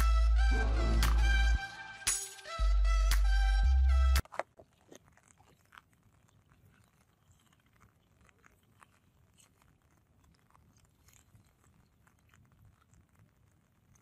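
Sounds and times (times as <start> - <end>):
music: 0.0 - 4.2.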